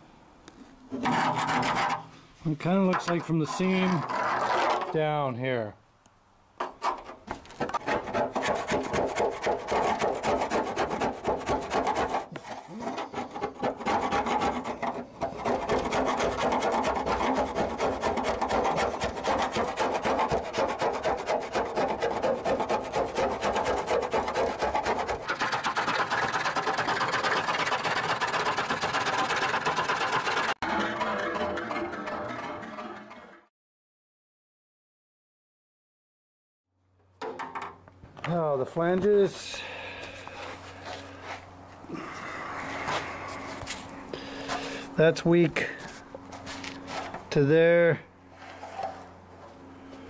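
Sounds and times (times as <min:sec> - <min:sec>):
scraper rasping on metal: 0:01.0 - 0:05.0, 0:06.6 - 0:33.4.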